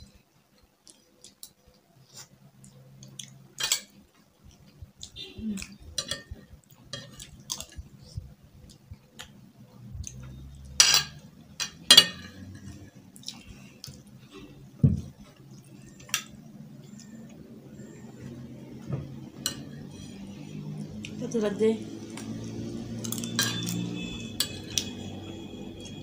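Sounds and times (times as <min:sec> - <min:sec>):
cutlery clinking on plates: 0:03.6 - 0:04.0, 0:06.0 - 0:07.8, 0:10.8 - 0:12.7, 0:19.4 - 0:20.2, 0:23.0 - 0:25.0
people chewing: 0:12.3 - 0:17.4.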